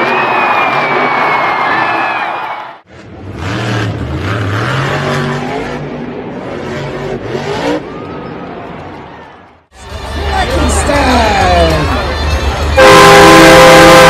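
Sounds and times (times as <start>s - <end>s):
monster truck engine revving: 2.9s - 8.1s.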